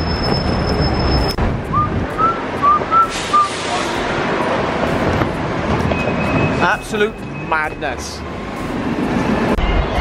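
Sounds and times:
wind noise: 0.0 - 6.6
road traffic: 0.0 - 10.0.

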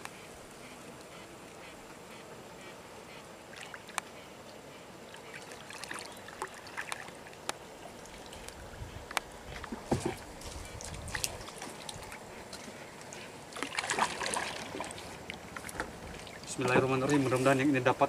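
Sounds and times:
paddle stroking through water: 8.1 - 17.4.

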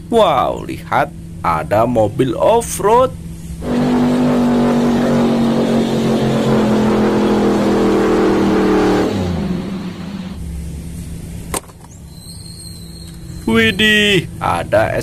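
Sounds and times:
off-road engine revving hard: 3.6 - 10.4
vehicle ploughing through mud: 3.6 - 10.4.

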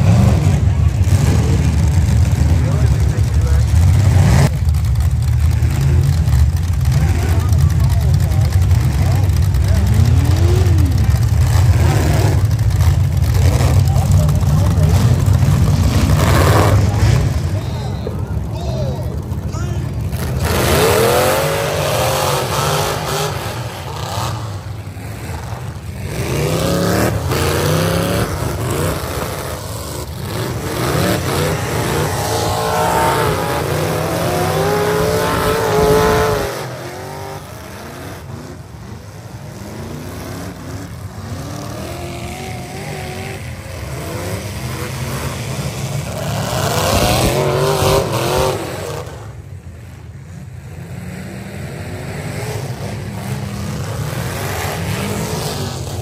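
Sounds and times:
car engines revving: 0.0 - 56.0.

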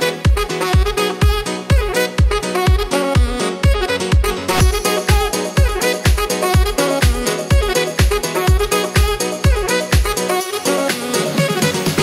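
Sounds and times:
background music with kick drum: 0.0 - 12.0.

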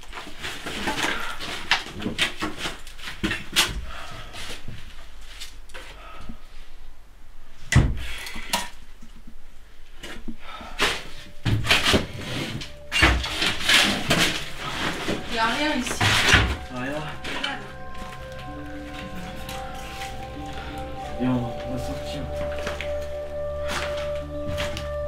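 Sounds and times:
objects knocking and clattering: 10.0 - 16.7.

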